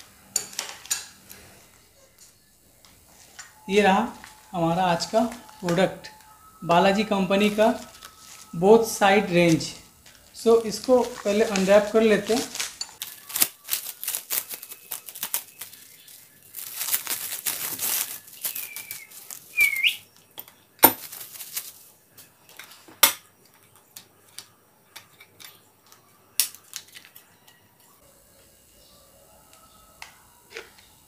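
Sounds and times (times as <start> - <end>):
plastic wrapping crinkling: 0.6 - 20.0, 20.9 - 22.0.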